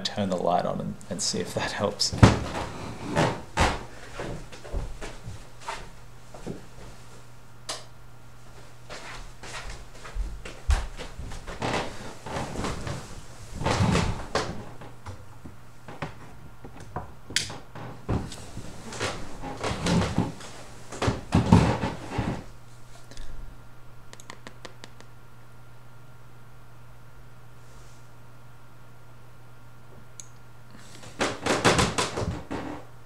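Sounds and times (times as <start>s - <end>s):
steady low hum: 0.0s - 33.0s
objects knocking and rustling: 2.1s - 6.7s, 10.0s - 22.5s, 30.9s - 32.8s.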